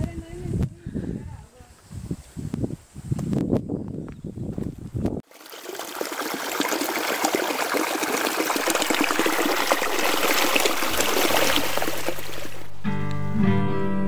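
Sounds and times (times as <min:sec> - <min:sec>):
stream babbling over stones: 0:05.2 - 0:12.7
soft music notes: 0:12.7 - 0:14.0.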